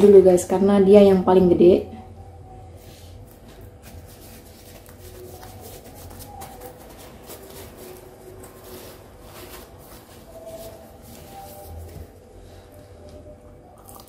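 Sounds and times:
paper tissue crinkling: 3.2s - 12.6s.

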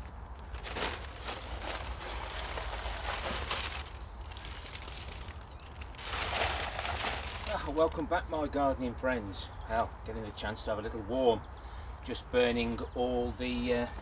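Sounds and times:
burning paper rustling and crackling: 0.0s - 7.8s.

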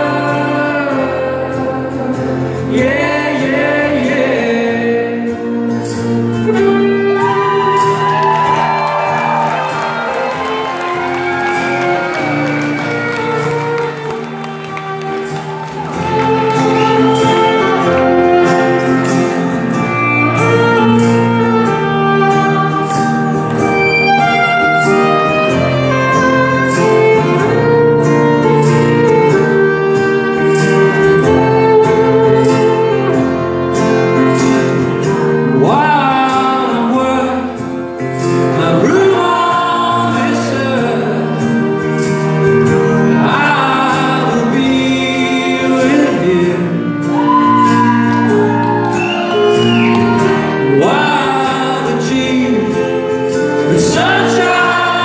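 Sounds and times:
pop band playing slow song: 0.0s - 55.0s
violin playing: 5.4s - 55.0s.

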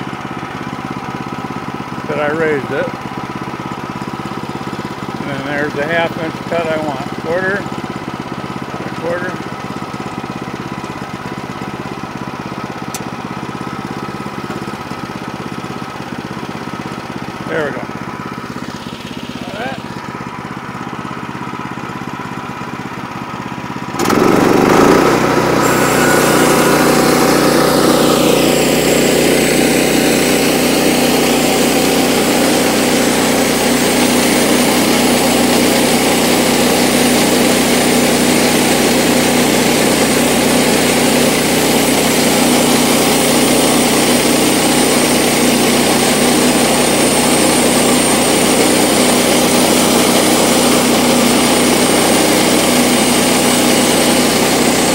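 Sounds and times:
engine running: 0.0s - 54.9s
bandsaw blade sawing wood: 24.0s - 54.9s
high whine falling in pitch: 25.4s - 32.3s.

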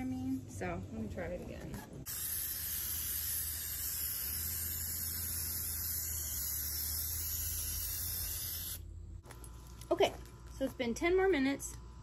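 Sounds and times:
spray can hissing: 2.1s - 8.8s.

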